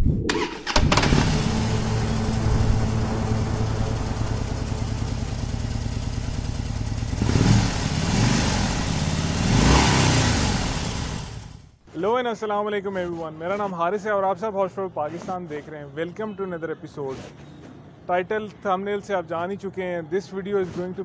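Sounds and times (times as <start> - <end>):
motorcycle engine revving: 0.4 - 11.7.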